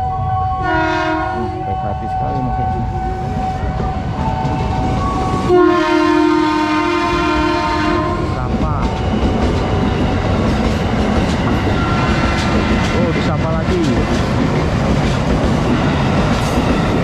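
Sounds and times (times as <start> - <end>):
train horn blast: 0.6 - 2.0, 5.5 - 8.4
train wheels rumbling on rails: 1.3 - 17.0.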